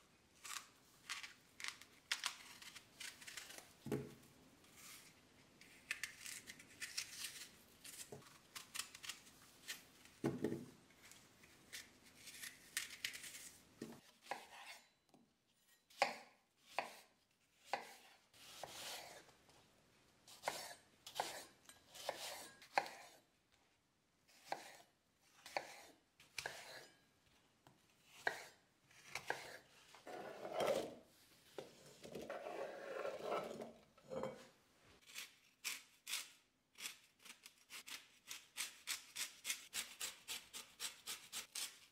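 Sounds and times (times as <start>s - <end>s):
knife scraping apple core: 0.4s - 3.7s, 4.8s - 9.9s, 20.3s - 23.2s, 24.3s - 27.0s, 28.0s - 31.0s, 32.2s - 34.3s, 35.0s - 41.9s
knife chopping on wooden board: 24.4s - 24.8s, 28.2s - 28.5s.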